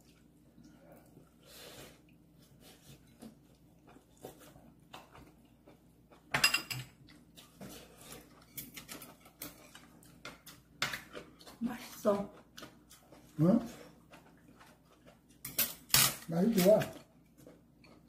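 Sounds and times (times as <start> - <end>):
chewing and lip noises: 7.0 - 15.4, 16.9 - 18.0.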